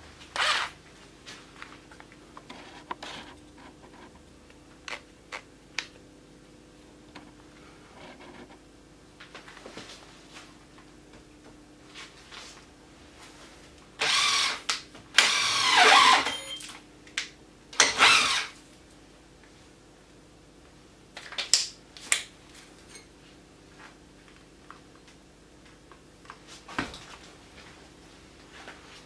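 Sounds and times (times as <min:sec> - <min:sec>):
cordless drill motor bursts: 0:00.4 - 0:00.7, 0:14.0 - 0:14.6, 0:15.2 - 0:16.6, 0:17.8 - 0:18.6.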